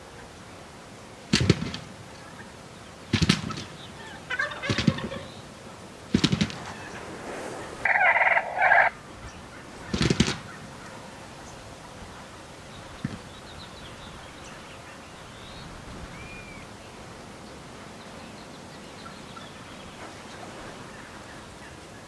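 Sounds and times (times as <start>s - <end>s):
turkeys gobbling: 3.4s - 5.5s, 6.2s - 11.2s
high-pitched turkey calls: 4.0s - 5.4s, 7.8s - 11.0s.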